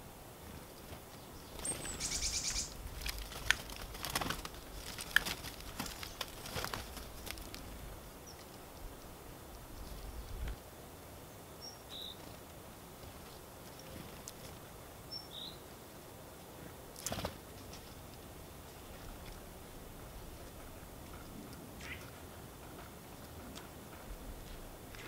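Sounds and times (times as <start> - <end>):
birds wings flapping: 0.4 - 7.8, 17.0 - 18.1.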